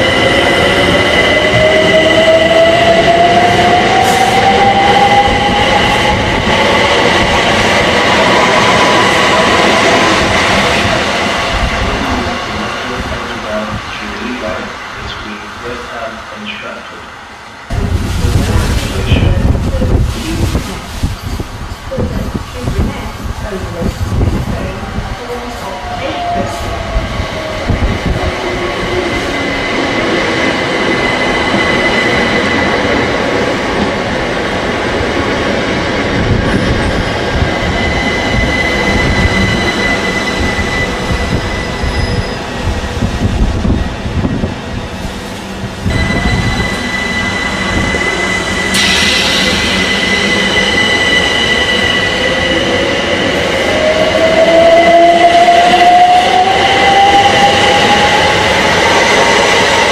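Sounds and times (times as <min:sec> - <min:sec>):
train wheels rumbling on rails: 0:17.7 - 0:59.9
electric train whine: 0:24.8 - 0:59.9.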